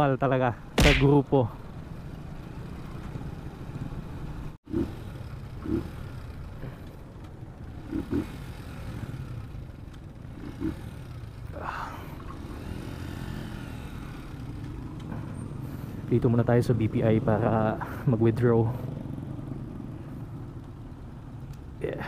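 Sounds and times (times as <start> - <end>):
motorcycle engine running: 2.4 - 16.0.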